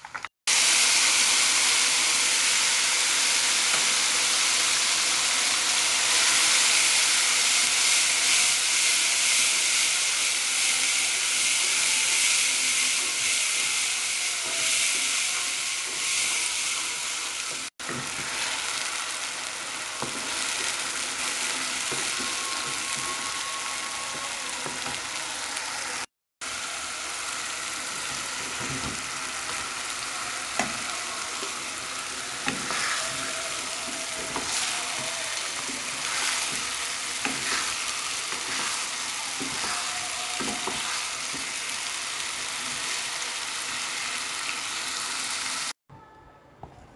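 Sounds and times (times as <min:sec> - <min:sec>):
paste sizzling in hot oil: 0:00.5 - 0:45.8
spatula stirring: 0:32.3 - 0:41.6.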